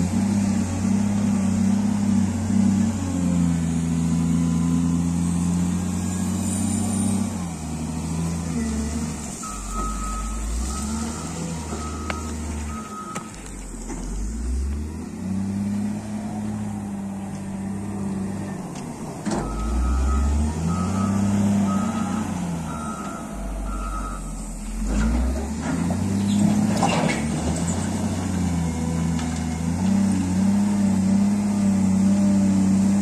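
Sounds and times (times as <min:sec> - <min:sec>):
diesel engine running: 0:00.0 - 0:33.0
back-up alarm beeping: 0:09.4 - 0:13.4, 0:19.4 - 0:24.5.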